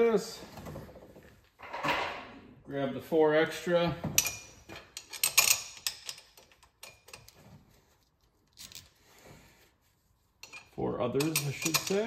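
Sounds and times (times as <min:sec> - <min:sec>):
metal bolts clicking and rattling: 0:04.1 - 0:07.5, 0:10.4 - 0:12.0.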